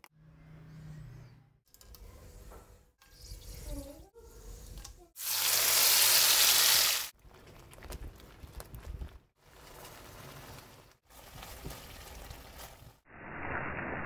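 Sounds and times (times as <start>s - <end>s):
paste sizzling in hot oil: 5.2s - 7.1s
quiet frying: 7.2s - 13.0s.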